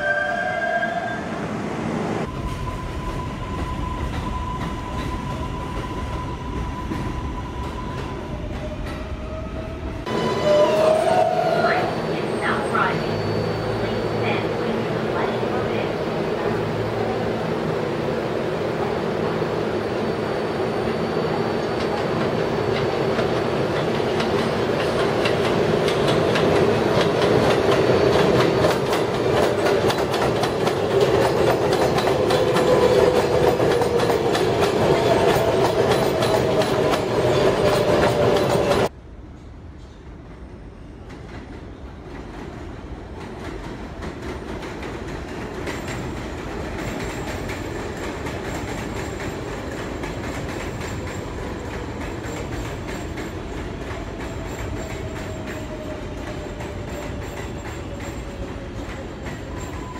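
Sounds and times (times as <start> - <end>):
train whine sliding in pitch: 0.0 - 14.5
train wheels clattering on rails: 21.6 - 38.9, 41.0 - 59.9.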